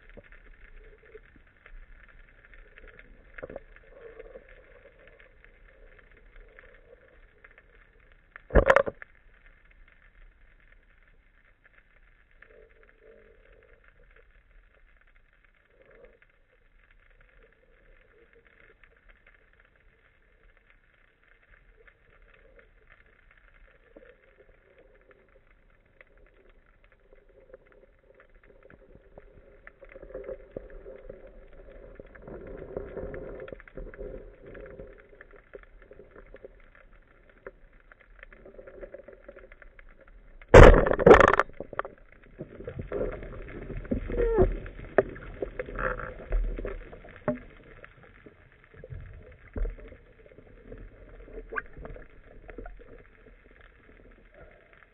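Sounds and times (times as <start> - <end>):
speargun firing crack: 40.6 - 41.5.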